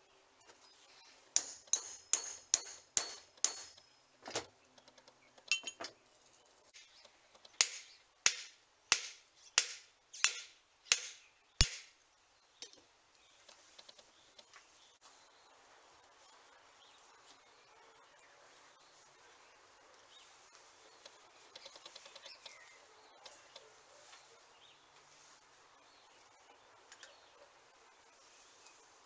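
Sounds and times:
hammer tapping on metal: 0:01.4 - 0:03.8.

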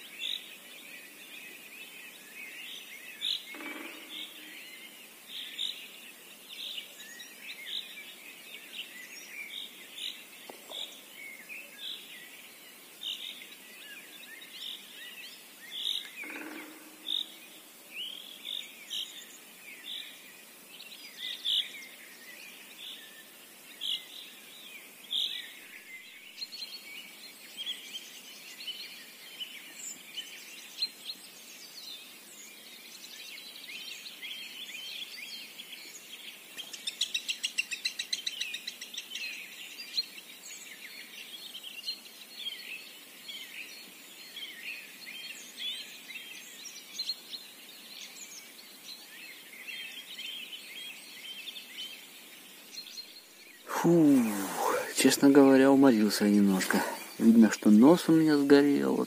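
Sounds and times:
birds chirping and singing: 0:00.0 - 0:59.0
lower bird calls: 0:15.8 - 0:19.2, 0:53.2 - 0:59.0.

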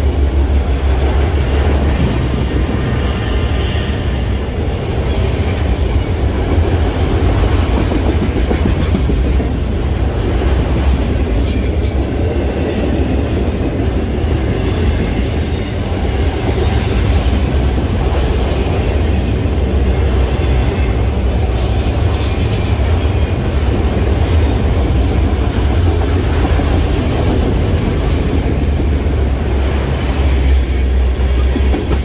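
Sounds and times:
freight train wheels rumbling: 0:00.0 - 0:32.0.

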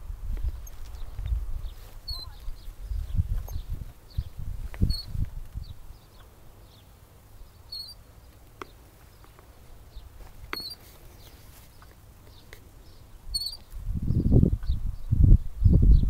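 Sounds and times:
swing squeaking: 0:02.0 - 0:02.4, 0:03.4 - 0:05.2, 0:07.7 - 0:08.1, 0:10.4 - 0:10.9, 0:13.3 - 0:13.6.

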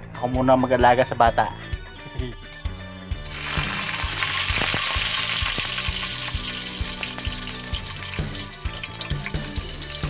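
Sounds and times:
garlic sizzling in hot oil: 0:03.2 - 0:10.0.

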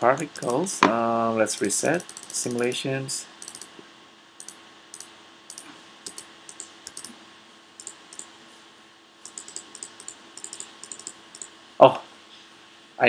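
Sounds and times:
keyboard and mouse clicking: 0:00.0 - 0:00.7, 0:01.5 - 0:02.8, 0:03.4 - 0:03.8, 0:04.4 - 0:07.2, 0:07.8 - 0:08.3, 0:09.2 - 0:11.5
faint steady hum: 0:00.0 - 0:13.0.

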